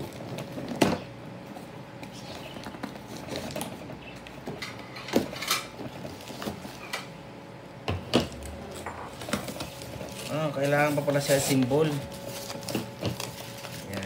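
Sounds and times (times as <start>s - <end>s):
cardboard flaps scratching and rustling: 0.0s - 4.6s, 9.2s - 14.0s.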